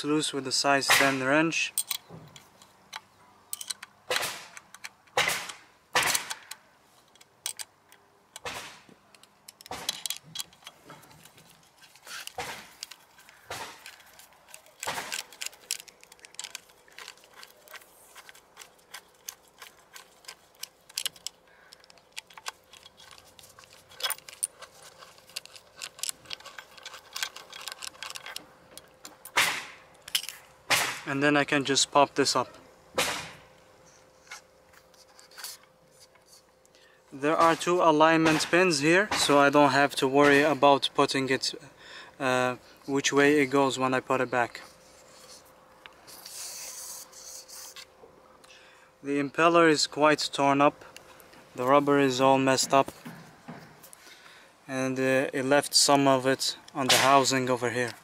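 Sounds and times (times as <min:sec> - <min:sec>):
metal tools clinking on bolts: 0:01.5 - 0:03.9, 0:09.1 - 0:30.5.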